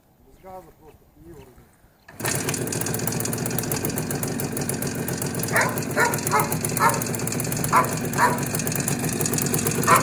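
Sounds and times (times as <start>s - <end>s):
two-stroke motorcycle engine idling: 2.1s - 10.0s
dog barking: 5.5s - 7.1s, 7.7s - 8.5s.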